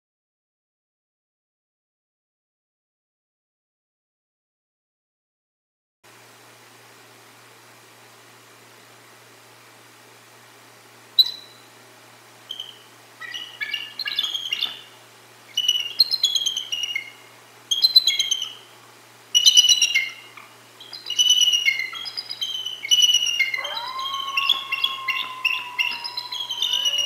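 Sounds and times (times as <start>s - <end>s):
eagles chattering whistled calls: 11.2s - 11.7s, 12.4s - 18.7s, 19.4s - 27.0s
coyote howl: 22.9s - 27.0s.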